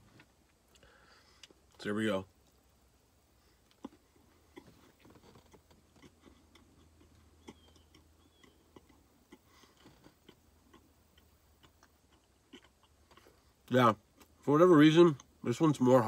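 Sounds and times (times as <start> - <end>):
chewing with mouth clicks: 3.6 - 14.4.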